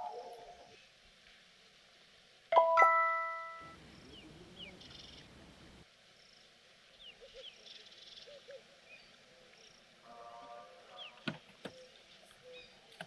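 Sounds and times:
birds chirping: 0:02.6 - 0:13.0.

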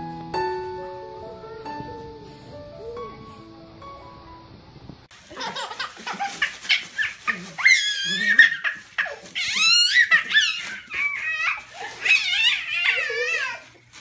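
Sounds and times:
baby laughing: 0:05.2 - 0:13.8.

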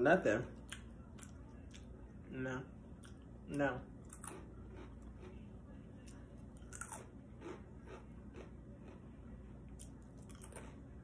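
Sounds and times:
person chewing crunchy cereal: 0:04.0 - 0:05.4, 0:06.1 - 0:09.0, 0:09.7 - 0:10.9.

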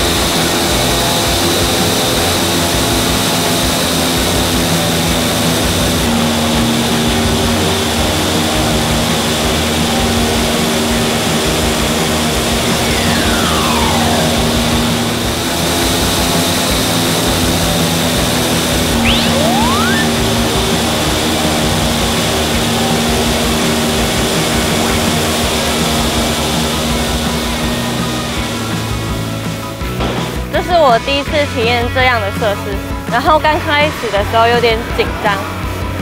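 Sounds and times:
whistle-like glide: 0:12.6 - 0:15.4, 0:18.9 - 0:20.7.

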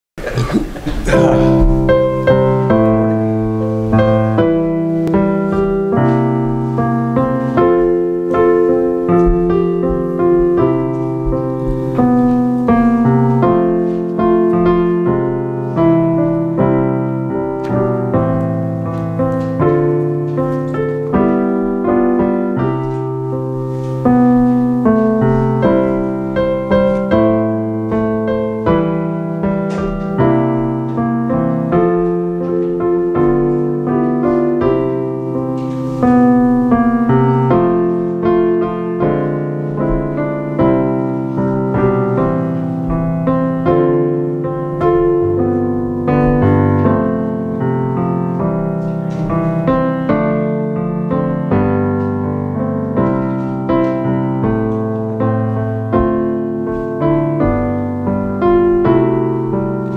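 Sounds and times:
solo piano music: 0:00.2 - 0:59.9.

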